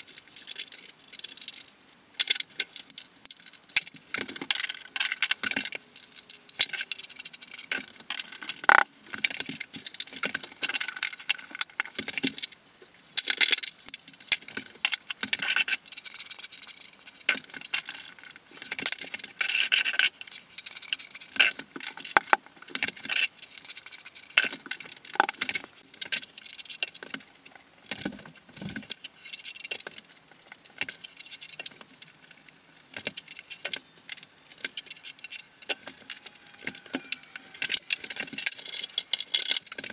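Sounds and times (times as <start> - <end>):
ceramic tiles clinking and scraping: 34.6 - 39.9.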